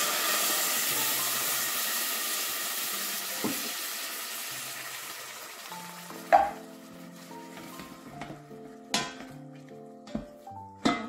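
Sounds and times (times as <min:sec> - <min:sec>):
liquid hissing in a hot pot: 0:00.0 - 0:08.0.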